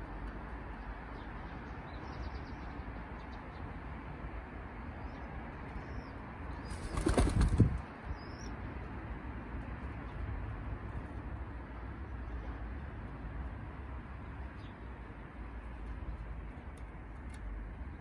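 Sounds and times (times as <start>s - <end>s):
small birds chirping: 0.5s - 4.0s, 4.9s - 8.6s, 14.2s - 16.6s
pigeon wings flapping: 6.7s - 7.8s.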